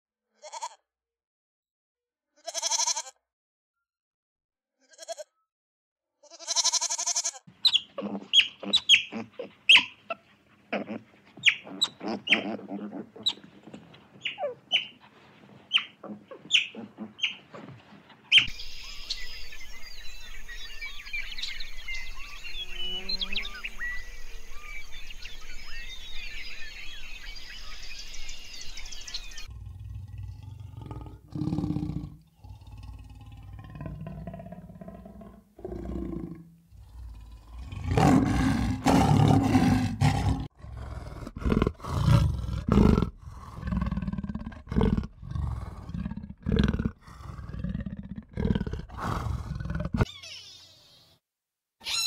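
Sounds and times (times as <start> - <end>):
high-pitched chirping: 7.7 - 10.0, 14.2 - 14.9, 50.1 - 51.1
big cat roaring and growling: 29.4 - 50.1.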